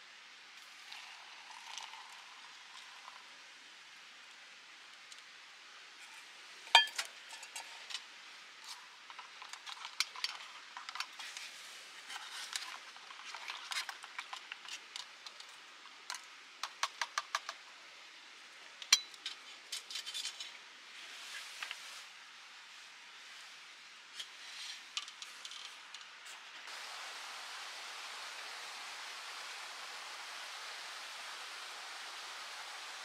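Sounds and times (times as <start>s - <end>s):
metal cookware clinking: 6.8s - 7.6s.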